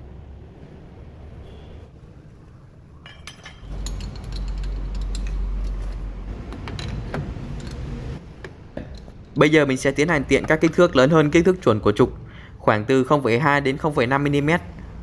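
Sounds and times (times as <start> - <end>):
steady low hum: 0.0 - 12.9
metal tooling clinking: 3.0 - 8.0.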